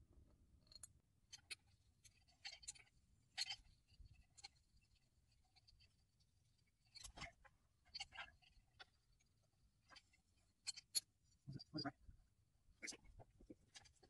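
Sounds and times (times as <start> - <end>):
metal pulley scrapes and clicks: 0.7 - 6.0, 9.8 - 11.8.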